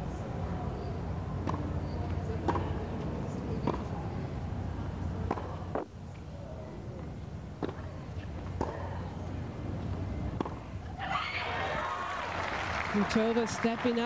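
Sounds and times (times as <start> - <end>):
steady background noise: 0.0 - 14.0
tennis ball hit by racket: 1.4 - 1.7, 2.4 - 2.8, 5.2 - 5.9, 7.6 - 7.9, 8.5 - 9.0, 10.3 - 10.6.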